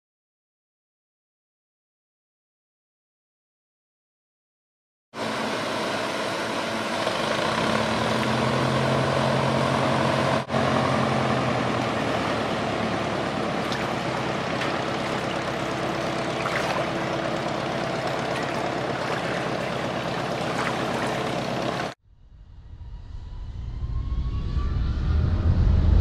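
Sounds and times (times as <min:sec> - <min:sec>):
motorboat engine passing: 0:05.2 - 0:22.0
propeller plane engine droning: 0:05.2 - 0:22.0.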